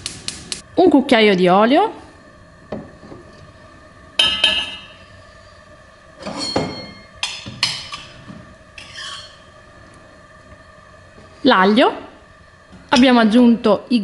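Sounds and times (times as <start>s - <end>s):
metal pots clinking: 4.2s - 5.0s, 6.2s - 8.2s.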